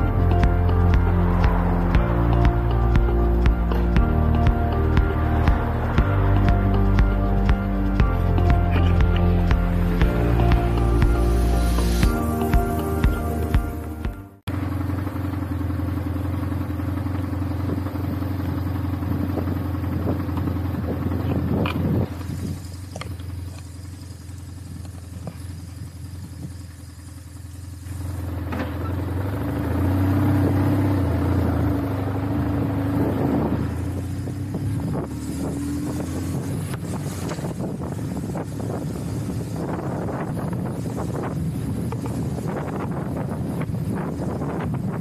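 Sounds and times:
motorcycle engine running: 0.0 - 45.0.

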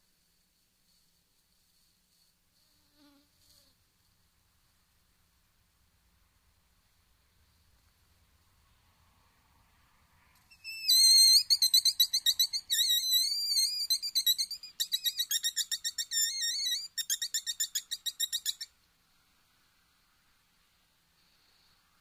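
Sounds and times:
predator call squeals: 10.5 - 18.7.

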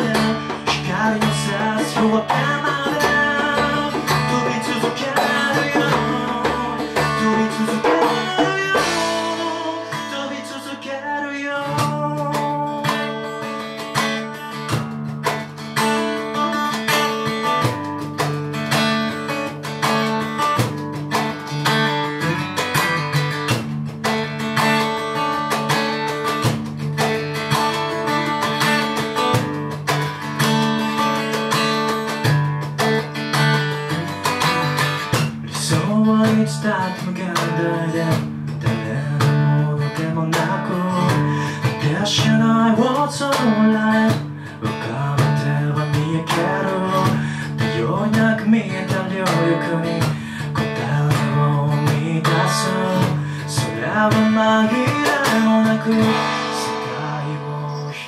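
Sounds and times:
man singing: 0.0 - 13.6, 21.8 - 23.4, 33.6 - 58.0
acoustic guitar strummed and picked: 0.0 - 58.0.

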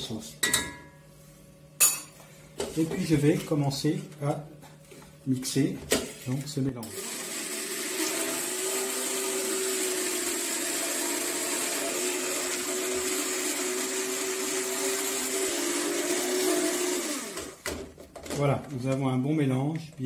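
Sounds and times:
immersion blender motor whining: 6.9 - 17.7.

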